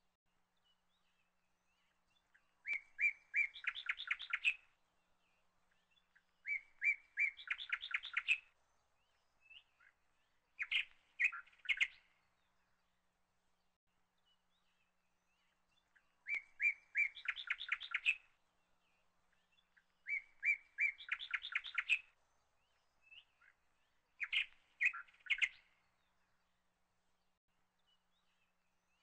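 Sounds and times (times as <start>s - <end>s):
bird singing with trill: 0.6s - 4.7s, 5.7s - 12.9s, 14.2s - 26.2s.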